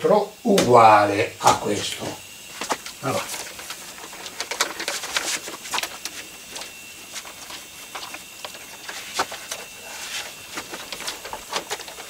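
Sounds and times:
plastic sheet crinkling: 0:02.6 - 0:12.0.

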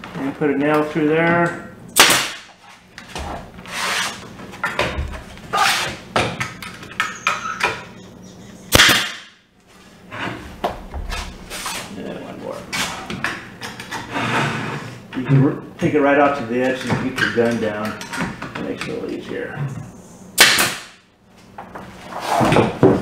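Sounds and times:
pneumatic nail gun firing: 0:02.0 - 0:02.5, 0:08.7 - 0:09.3, 0:20.4 - 0:21.0.

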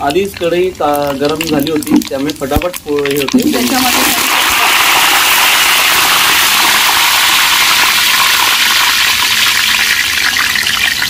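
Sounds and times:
oil crackles: 0:00.0 - 0:11.0
spices sizzling in hot oil: 0:00.0 - 0:11.0.

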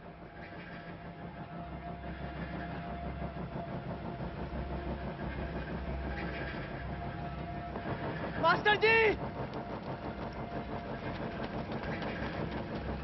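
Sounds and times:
low rumbling drone: 0:00.0 - 0:13.0.

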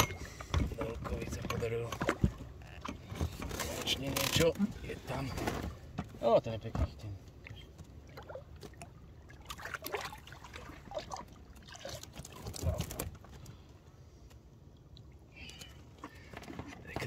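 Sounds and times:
water trickling and splashing: 0:07.2 - 0:13.8, 0:14.6 - 0:17.0.

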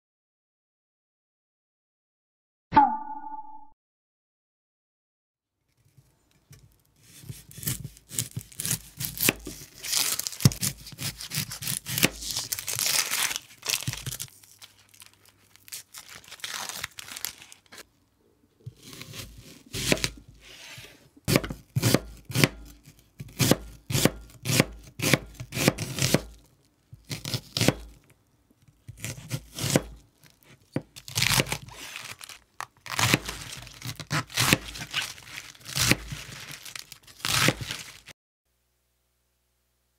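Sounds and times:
onion skin crackling and tearing: 0:06.7 - 0:17.8, 0:21.6 - 0:28.1, 0:28.7 - 0:38.1
knife strokes on cutting board: 0:18.8 - 0:21.0.

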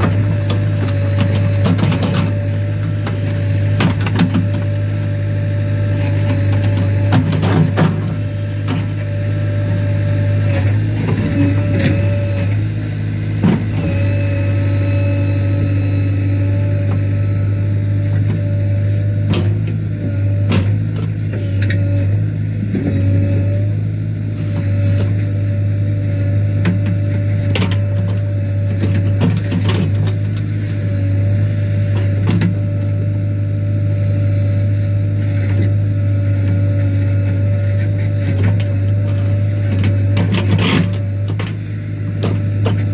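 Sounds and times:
steady whine: 0:00.0 - 0:22.9
diesel engine running under load: 0:00.0 - 0:42.9.

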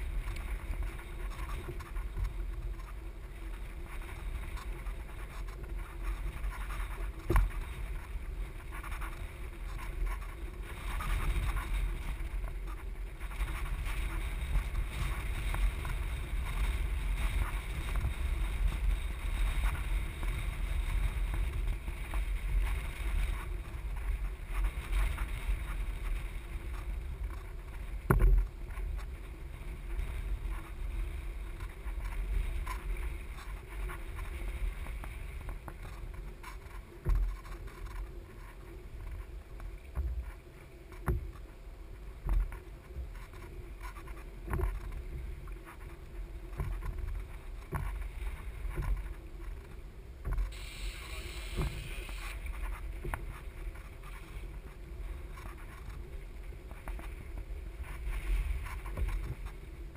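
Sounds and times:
water splashing against kayak: 0:00.0 - 0:59.9
wind buffeting microphone: 0:00.0 - 0:59.9.

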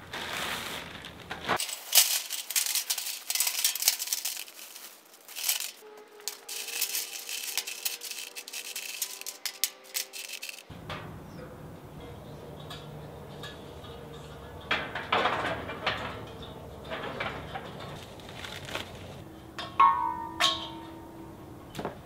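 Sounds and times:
rocks clattering in metal pan: 0:01.2 - 0:11.0, 0:13.4 - 0:19.0, 0:19.6 - 0:21.0.

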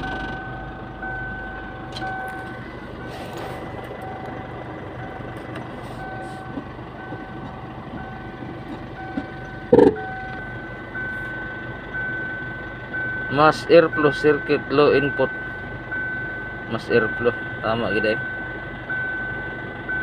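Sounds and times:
pulsing electronic beep: 0:00.0 - 0:02.4, 0:06.0 - 0:13.4
low engine hum: 0:00.0 - 0:20.0.

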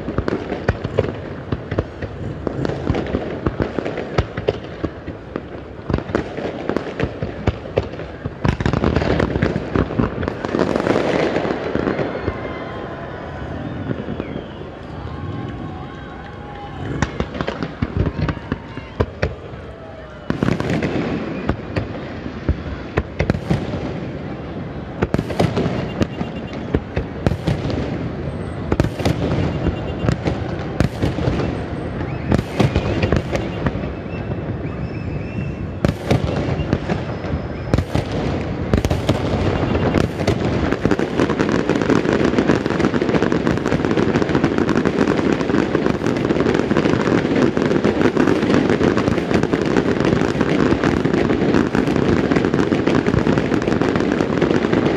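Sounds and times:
fireworks bangs: 0:00.0 - 0:54.9.

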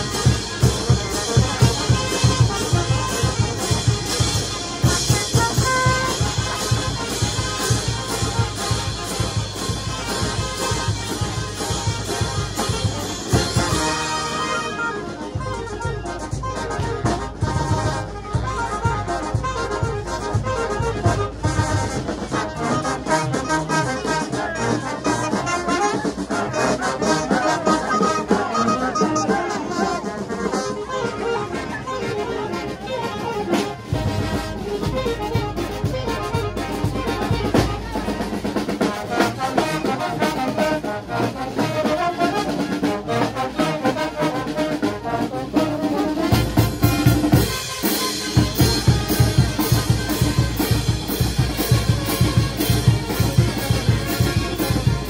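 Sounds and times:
drums keeping steady beat: 0:00.0 - 0:31.9, 0:32.5 - 0:55.0
brass band playing dance music: 0:00.0 - 0:55.0.

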